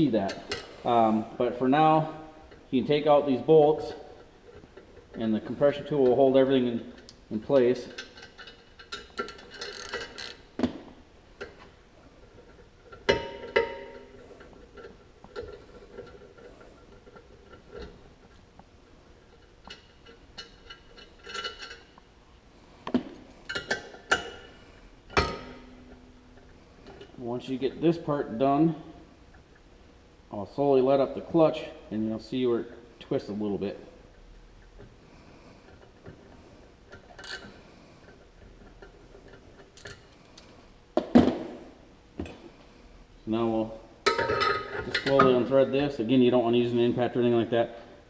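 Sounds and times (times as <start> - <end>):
metal clinks and knocks: 12.2 - 18.0.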